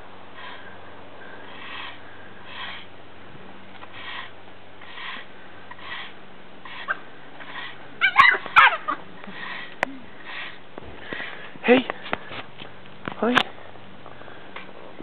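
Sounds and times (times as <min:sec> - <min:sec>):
puppy yelping: 0:08.0 - 0:09.0.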